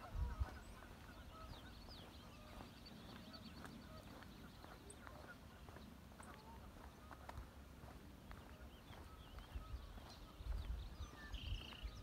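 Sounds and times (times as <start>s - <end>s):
waterfowl honking: 0.0s - 2.7s, 3.3s - 7.4s
birds chirping: 0.0s - 12.0s.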